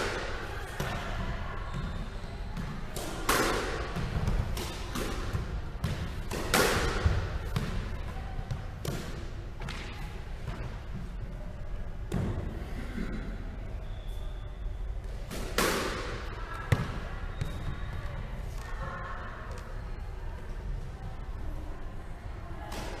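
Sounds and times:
squash ball smacks: 0:02.6 - 0:07.9.

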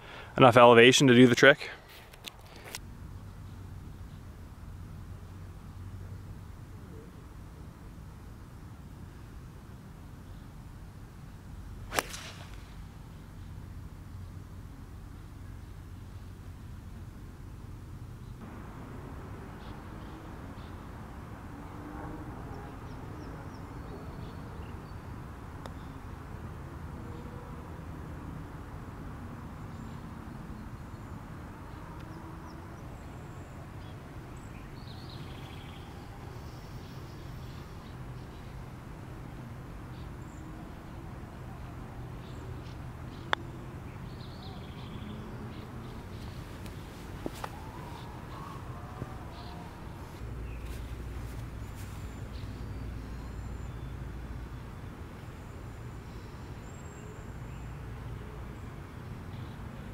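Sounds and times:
low outdoor background: 0:00.0 - 0:59.9
golf club striking ball: 0:11.9 - 0:12.9
low outdoor rumble: 0:32.5 - 0:59.9.

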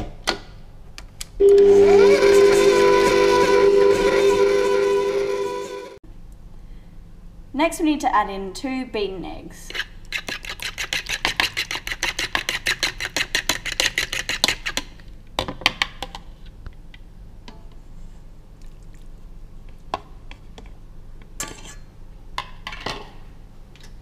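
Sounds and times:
fork beating eggs in bowl: 0:09.7 - 0:15.0.

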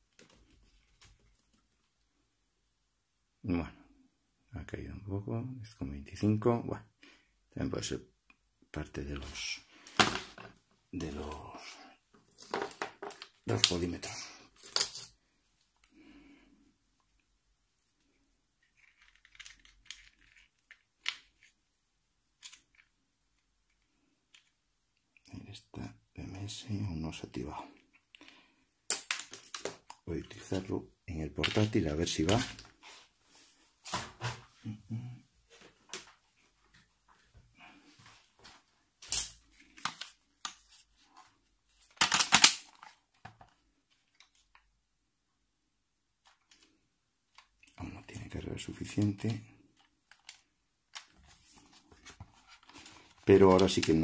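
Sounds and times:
plastic battery clicks and rustles: 0:28.9 - 0:30.0, 0:39.0 - 0:44.6, 0:48.9 - 0:54.0.

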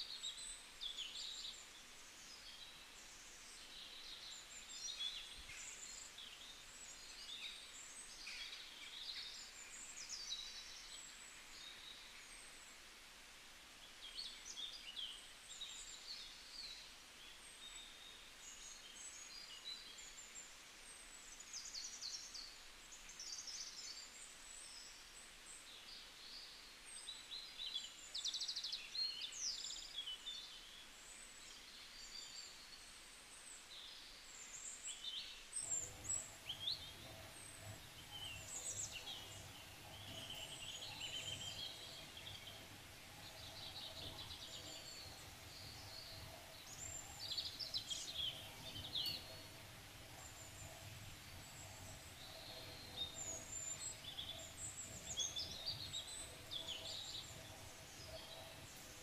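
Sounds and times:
small birds chirping: 0:13.8 - 0:59.0.

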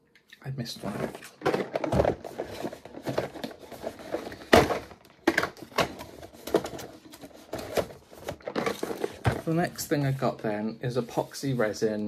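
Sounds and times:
packaging rustling: 0:00.8 - 0:10.3.

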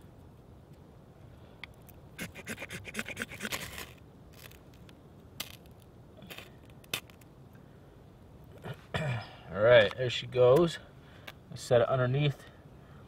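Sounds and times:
knife scraping ferrocerium rod: 0:02.2 - 0:04.6.

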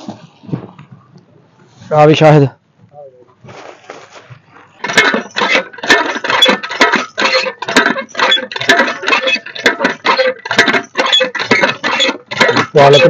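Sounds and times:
hand pump clanking and squeaking: 0:04.8 - 0:13.0.

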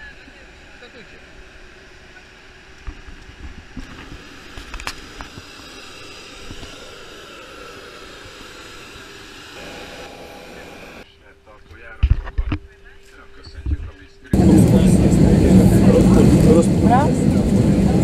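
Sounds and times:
aircraft and vehicles whine and rumble: 0:00.0 - 0:18.0
steady high tones: 0:05.5 - 0:11.6.

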